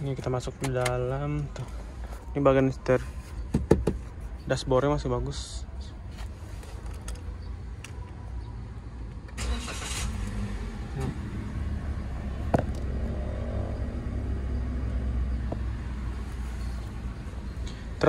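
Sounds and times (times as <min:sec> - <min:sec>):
car starter cranking: 0:09.3 - 0:11.1
car engine idling: 0:09.4 - 0:18.0.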